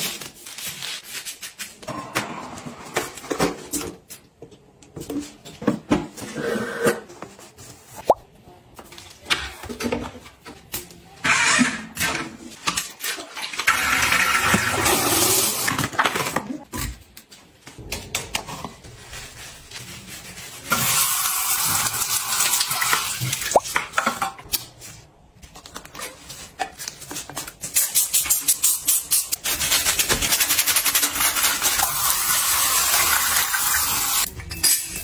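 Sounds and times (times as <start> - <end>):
brush scrubbing toilet: 18.2 - 23.8, 27.6 - 34.3.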